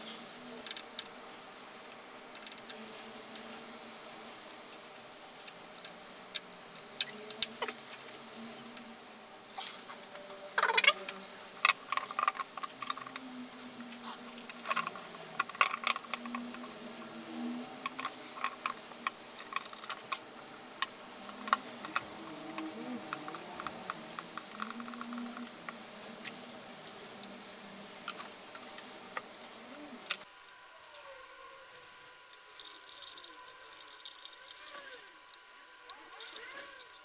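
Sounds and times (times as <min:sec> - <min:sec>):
hands handling wiring clicks: 0:11.6 - 0:16.7.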